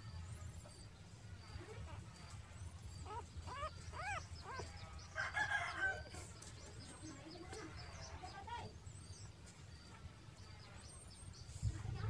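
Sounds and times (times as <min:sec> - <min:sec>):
short squeaky calls: 0:00.8 - 0:06.2
rooster crowing: 0:05.0 - 0:06.2.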